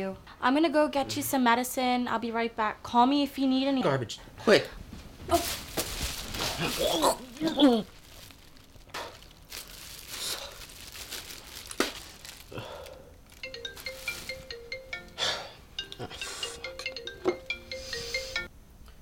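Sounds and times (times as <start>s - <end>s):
plastic bag crinkling: 5.2s - 14.8s
man retching: 6.5s - 7.9s
smartphone ringtone: 13.4s - 18.5s.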